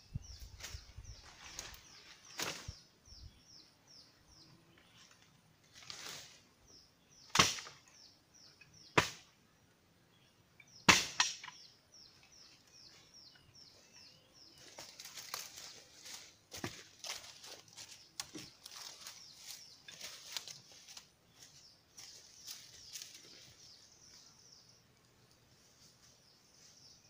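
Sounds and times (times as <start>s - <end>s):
sharp cracks: 7.3s - 7.8s, 10.9s - 11.6s.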